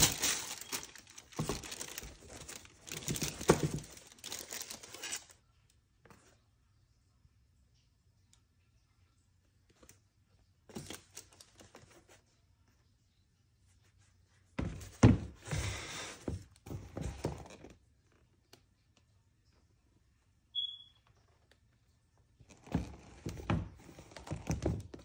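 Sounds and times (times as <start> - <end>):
tissue paper rustling: 0.0 - 5.3
paper crinkling: 0.0 - 5.4
sneaker box handled on wooden table: 0.1 - 4.4, 14.6 - 17.7.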